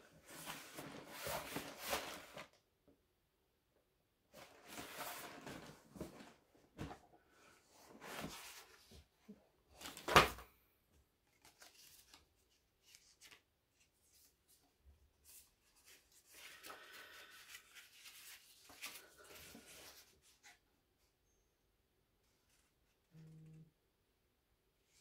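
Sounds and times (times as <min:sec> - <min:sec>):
cardboard and paper rustling: 0:00.0 - 0:02.6, 0:04.3 - 0:10.4, 0:11.2 - 0:20.6.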